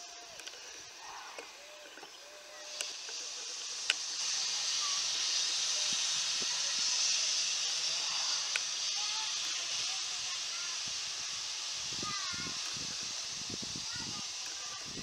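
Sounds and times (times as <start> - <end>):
steam locomotive venting steam: 0.0 - 15.0.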